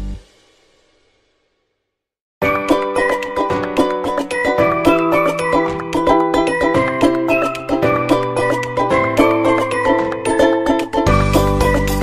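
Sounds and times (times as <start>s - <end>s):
music with held keyboard tones: 2.5s - 12.0s.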